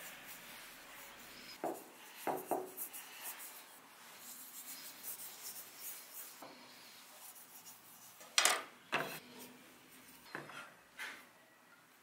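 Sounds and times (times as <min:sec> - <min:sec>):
hands rubbing wooden bowl: 0:00.0 - 0:08.2.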